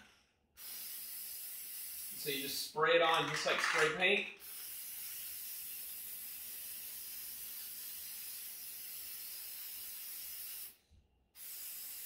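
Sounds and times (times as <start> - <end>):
aerosol spray hissing: 0.6 - 2.6, 4.4 - 10.8, 11.4 - 12.0.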